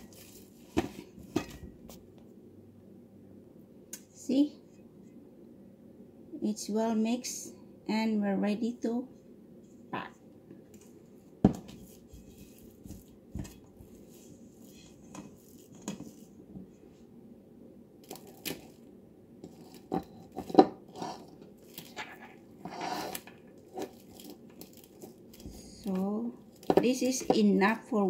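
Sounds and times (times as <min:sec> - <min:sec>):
spatula scraping metal bowl: 0:19.4 - 0:21.4, 0:22.6 - 0:23.9.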